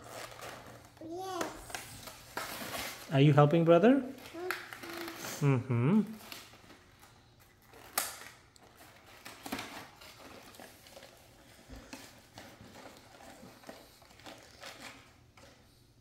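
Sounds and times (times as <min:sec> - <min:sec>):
packaging rustling and clicking: 0:00.0 - 0:03.1, 0:06.2 - 0:15.7.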